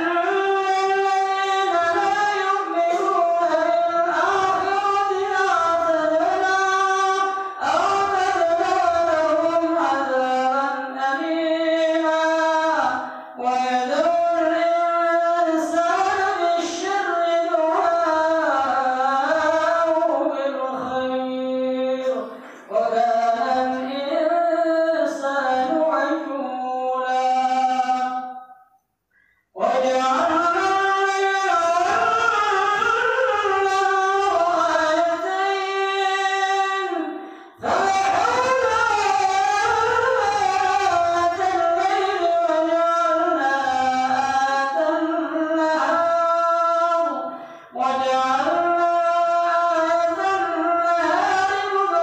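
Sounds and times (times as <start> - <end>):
man chanting through a microphone: 0.0 - 28.6, 29.5 - 52.0.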